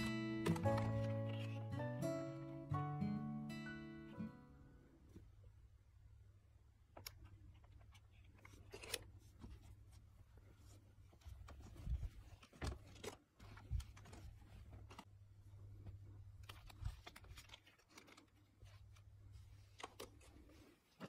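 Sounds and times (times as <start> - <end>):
plastic pack rustling and clicking: 0.0 - 1.6, 11.3 - 15.1, 16.4 - 21.0.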